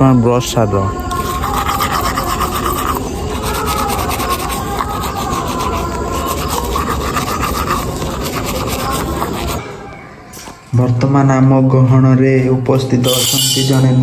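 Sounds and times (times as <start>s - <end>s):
toothbrush scrubbing teeth: 1.1s - 9.6s.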